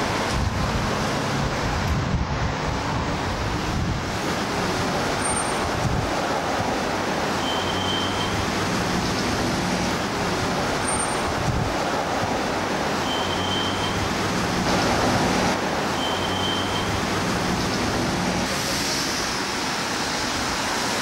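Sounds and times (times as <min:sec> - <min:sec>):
traffic noise: 0:00.0 - 0:21.0
wind on microphone: 0:00.1 - 0:06.9, 0:11.2 - 0:12.4.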